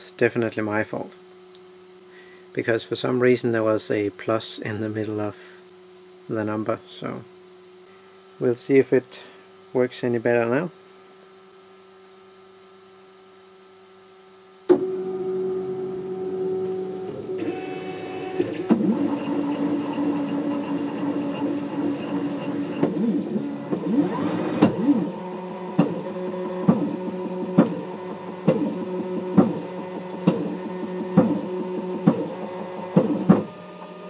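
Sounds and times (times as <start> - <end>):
faint steady hum: 0.0 - 34.0
stepper motors whining: 14.7 - 34.0.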